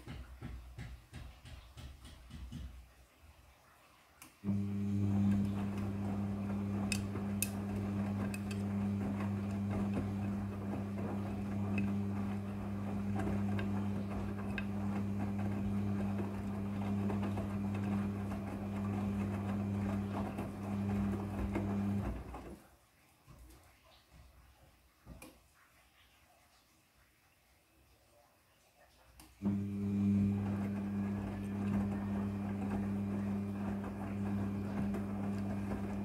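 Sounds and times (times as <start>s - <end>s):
washing machine drum hum: 0.0s - 2.9s, 4.4s - 22.7s, 29.4s - 36.0s.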